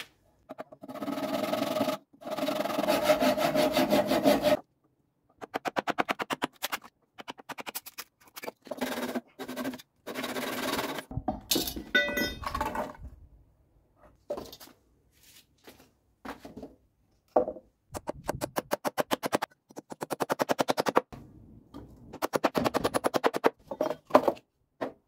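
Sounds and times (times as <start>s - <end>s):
metal clinks and knocks: 11.1s - 13.0s.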